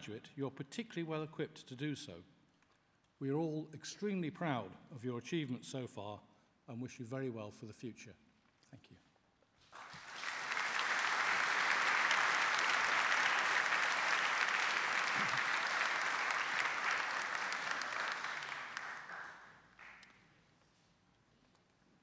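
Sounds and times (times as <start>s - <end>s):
audience applauding: 9.8s - 20.1s.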